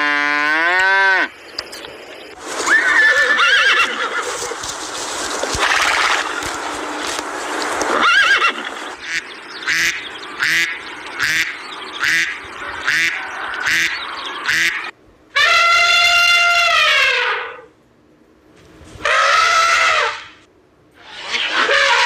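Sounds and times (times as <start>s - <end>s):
elephant trumpeting: 2.6s - 4.6s, 5.5s - 6.6s, 7.9s - 17.7s, 19.0s - 22.0s
horse whinny: 2.7s - 4.3s
ducks quacking: 5.4s - 14.9s.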